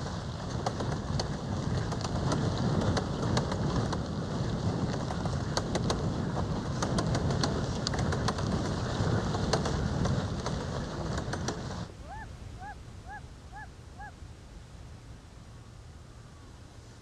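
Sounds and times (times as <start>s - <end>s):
rough road noise: 0.0s - 12.1s
heavy wind buffeting: 0.0s - 12.7s
bird calling: 11.9s - 14.2s.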